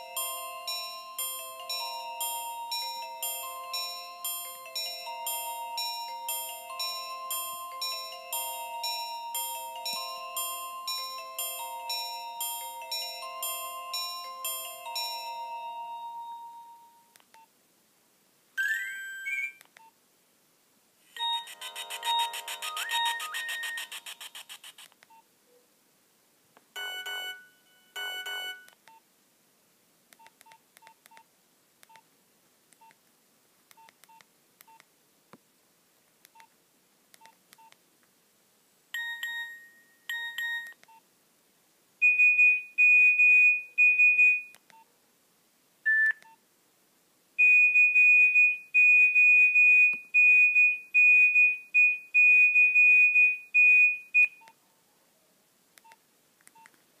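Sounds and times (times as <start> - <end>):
phone alert chimes: 18.6 - 19.6, 21.2 - 24.0, 26.8 - 28.7, 39.0 - 40.8
rapid high-pitched beeping: 21.2 - 24.8, 26.8 - 28.7
keypad beeps: 21.2 - 25.2, 26.8 - 29.0, 39.0 - 41.0, 45.9 - 46.4, 53.2 - 54.6.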